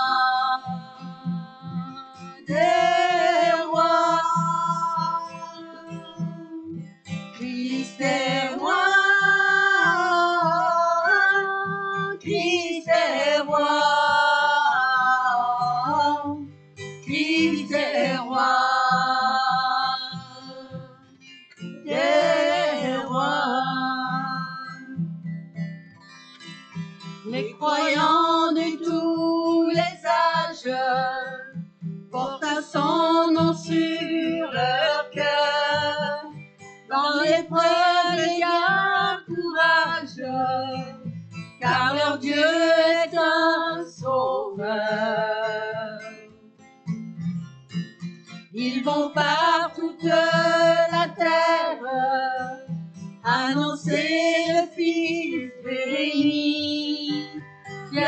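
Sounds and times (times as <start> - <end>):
women singing a hymn: 0.0 - 6.8, 7.4 - 21.0, 21.7 - 25.0, 27.3 - 46.2, 48.6 - 58.0
strummed acoustic guitar: 0.0 - 58.0.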